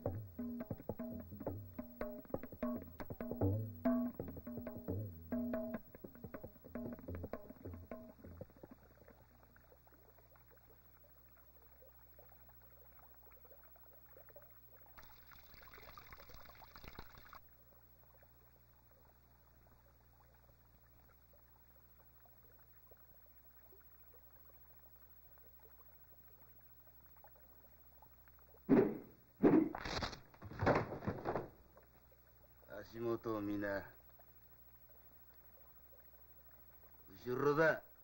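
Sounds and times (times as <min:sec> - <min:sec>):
low hum and crackle: 0:04.3 - 0:38.0.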